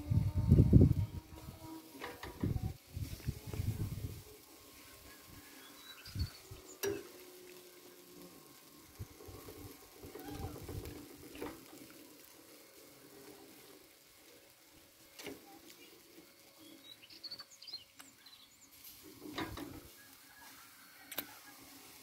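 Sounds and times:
meat sizzling and crackling: 0.0 - 22.0
bird chirps: 16.6 - 18.7.

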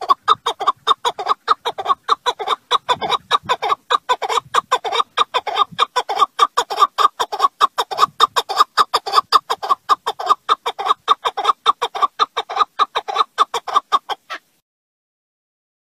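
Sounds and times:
partridge chucking call: 0.0 - 14.4.

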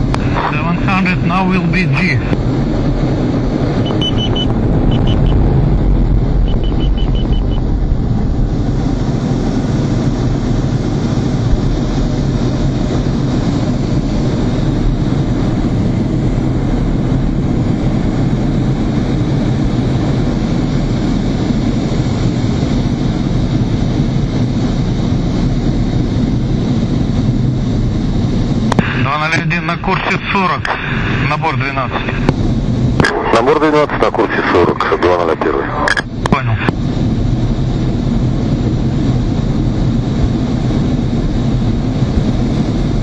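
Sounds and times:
jet engines and rushing air: 0.0 - 43.0
rapid high-pitched beeping: 3.8 - 5.4, 6.4 - 7.6.

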